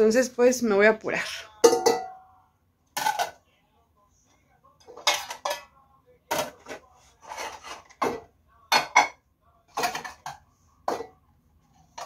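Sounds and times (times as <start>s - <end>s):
dishes clinking and clattering: 1.6s - 2.2s, 3.0s - 3.4s, 4.8s - 11.2s, 11.8s - 12.0s.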